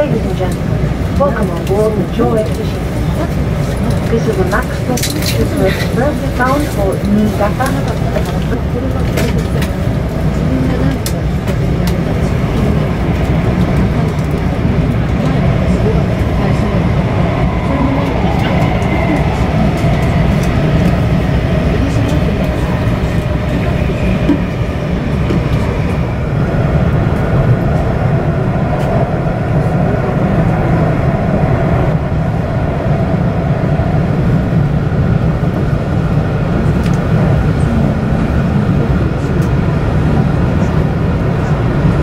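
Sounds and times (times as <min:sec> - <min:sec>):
train rumble from inside cabin: 0:00.0 - 0:42.0.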